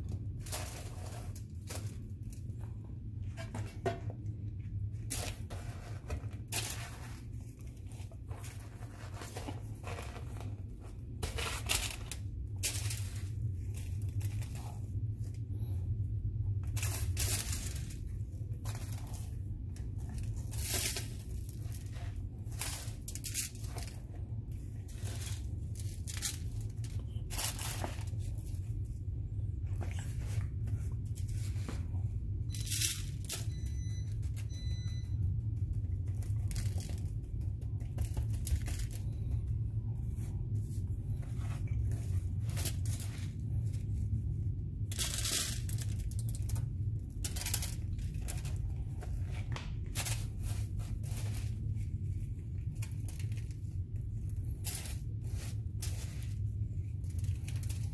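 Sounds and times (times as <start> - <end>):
steady low hum: 0.0 - 57.9
aluminum foil crinkling: 4.7 - 15.5, 16.4 - 57.9.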